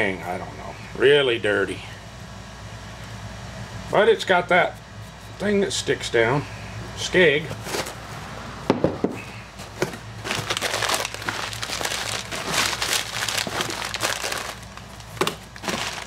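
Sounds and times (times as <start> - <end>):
newspaper crinkling and rustling: 9.8 - 16.0.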